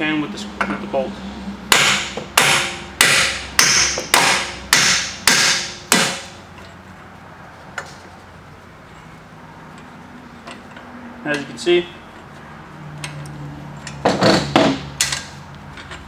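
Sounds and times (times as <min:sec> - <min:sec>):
hammer striking metal bolt: 0:01.7 - 0:06.4.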